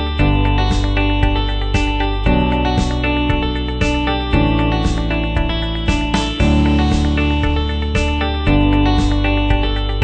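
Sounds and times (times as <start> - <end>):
background music with steady beat: 0.0 - 10.0.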